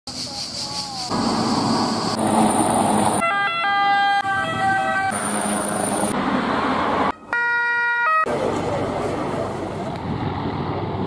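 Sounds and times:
road traffic noise: 0:00.1 - 0:11.0
emergency siren: 0:03.0 - 0:06.1, 0:07.1 - 0:08.4.

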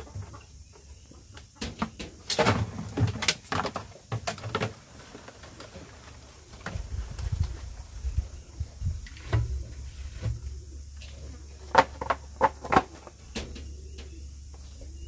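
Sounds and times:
hard plastic objects clattering: 0:01.6 - 0:06.9, 0:11.5 - 0:13.8.

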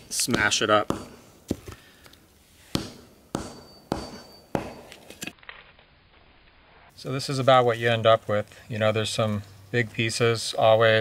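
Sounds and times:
hatchet striking wooden block: 0:00.2 - 0:01.8, 0:02.7 - 0:05.0.

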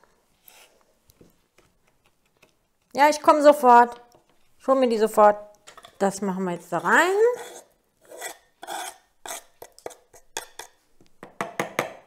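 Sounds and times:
knife scraping wooden board: 0:06.8 - 0:10.7.

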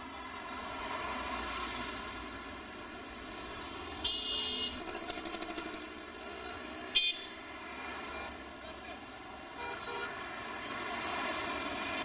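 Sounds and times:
street traffic: 0:00.0 - 0:12.0
vehicle horn honks: 0:04.0 - 0:04.8, 0:06.9 - 0:07.3.

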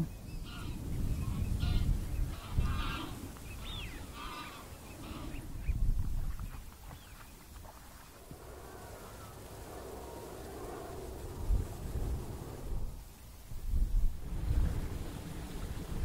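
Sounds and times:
wind buffeting microphone: 0:00.0 - 0:16.0
waterfowl honking: 0:00.4 - 0:05.5.

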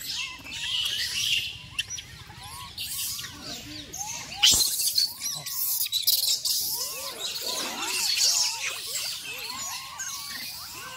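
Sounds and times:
monkeys chirping and cooing: 0:00.0 - 0:10.9.

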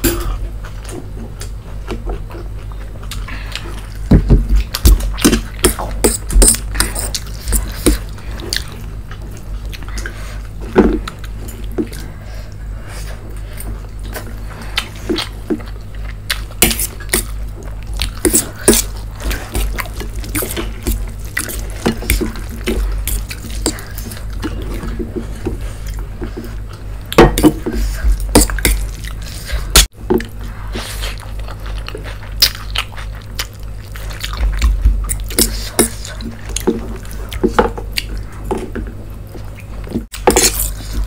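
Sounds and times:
steady low hum: 0:00.0 - 0:41.0
wet chewing and slurping: 0:00.4 - 0:41.0.

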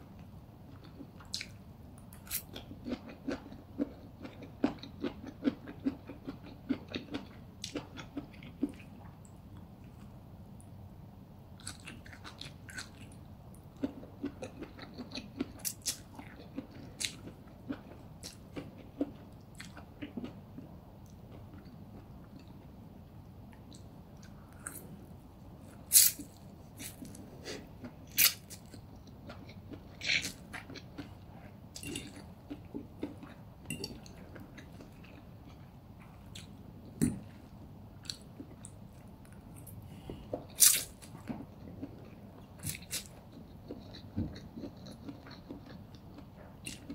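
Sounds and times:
chewing with wet mouth clicks: 0:13.8 - 0:20.4, 0:40.6 - 0:46.9.

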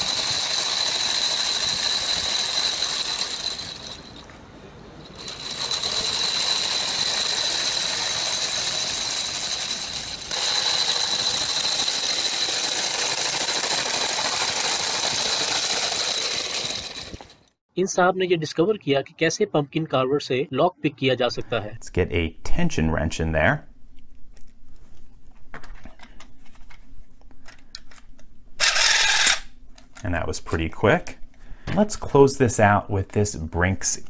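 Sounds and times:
motorized skateboard mechanism whining: 0:00.0 - 0:17.6, 0:28.6 - 0:29.5.

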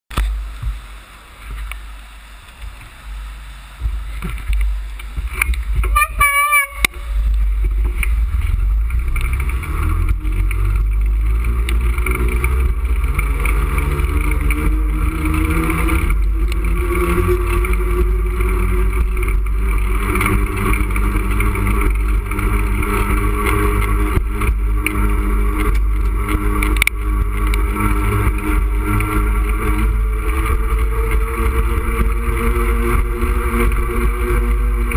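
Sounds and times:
road traffic: 0:00.1 - 0:34.9
wind rumbling on microphone: 0:00.1 - 0:34.9
brief warbling tone: 0:06.0 - 0:07.0.

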